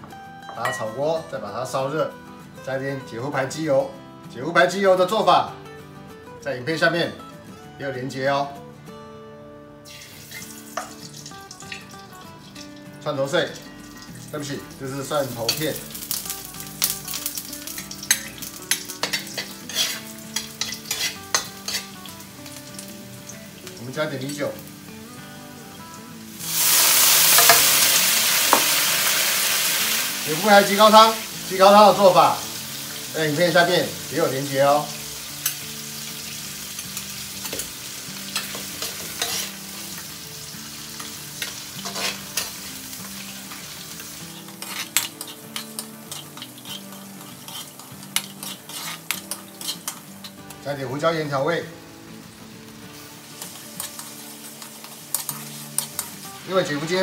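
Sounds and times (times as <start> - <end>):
garlic sizzling in fat: 9.8 - 57.0
metal ladle scraping a wok: 18.1 - 22.0, 38.3 - 39.7, 41.4 - 42.6, 44.3 - 50.1, 53.4 - 56.1.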